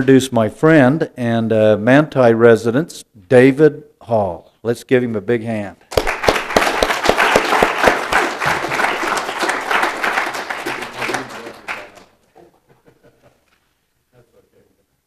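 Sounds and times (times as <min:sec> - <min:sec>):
audience applauding: 0:05.9 - 0:12.2.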